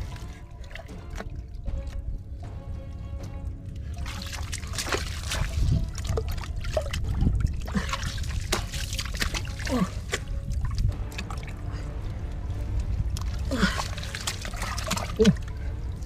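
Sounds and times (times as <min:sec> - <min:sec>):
muddy water splashing: 0:00.0 - 0:16.0
water gurgling: 0:03.9 - 0:11.8, 0:13.1 - 0:16.0.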